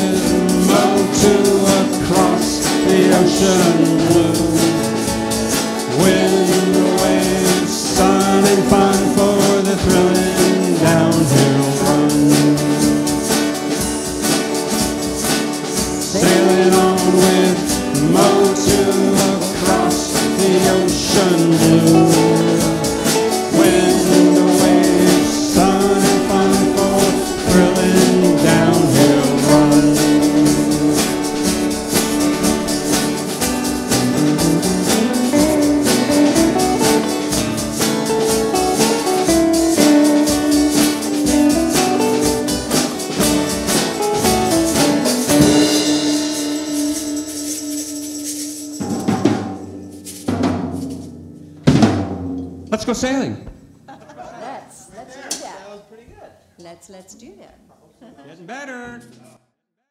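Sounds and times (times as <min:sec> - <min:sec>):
song with drum kit: 0:00.0 - 0:54.0
loud drum hits: 0:21.8 - 0:39.0, 0:40.2 - 0:46.5, 0:48.9 - 0:53.9.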